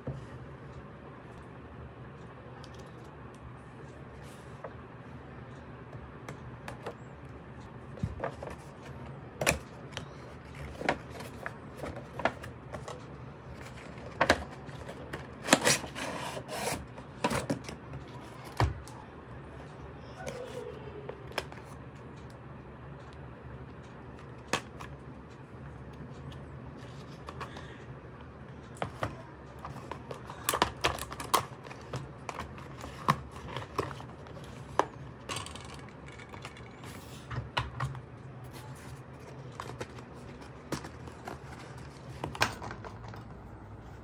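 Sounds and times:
plastic toys clicking and knocking: 28.8 - 36.8.

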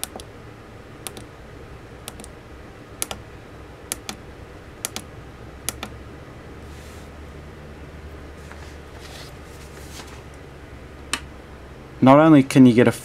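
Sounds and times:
push-button switch double clicks: 3.0 - 3.2.

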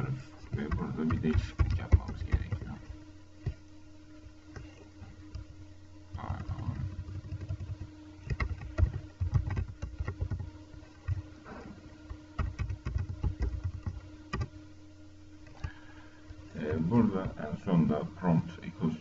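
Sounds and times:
low electrical hum: 0.0 - 19.0
computer keyboard typing: 0.5 - 2.8, 6.9 - 10.5, 12.4 - 14.5.

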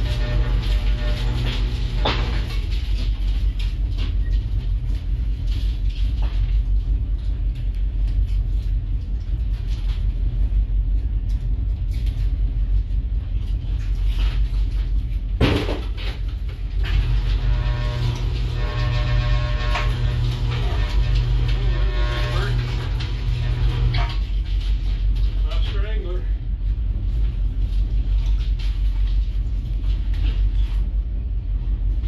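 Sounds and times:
motor humming: 0.0 - 2.6, 16.8 - 24.2.

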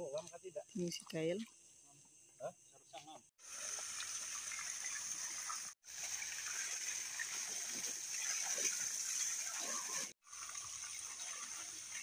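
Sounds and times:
water spraying and splashing: 3.4 - 12.0.

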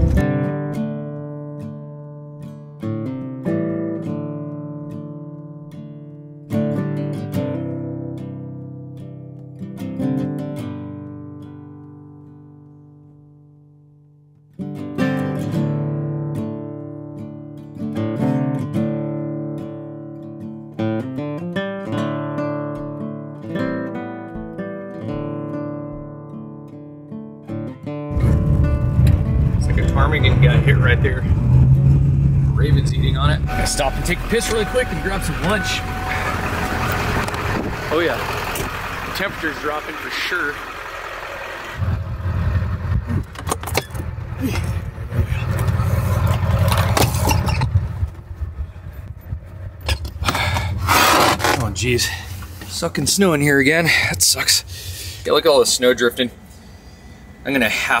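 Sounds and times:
acoustic guitar music: 0.0 - 41.9
wind buffeting microphone: 36.4 - 37.9.

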